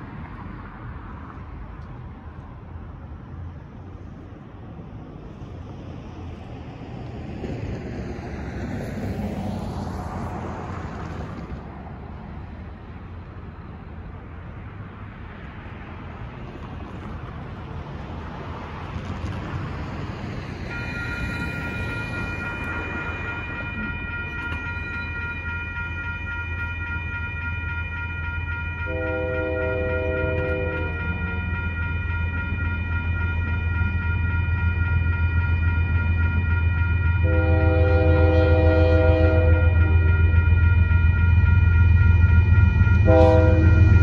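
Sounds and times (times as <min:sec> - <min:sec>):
cars passing: 0:00.0 - 0:44.0
crossing warning bells ringing: 0:20.2 - 0:44.0.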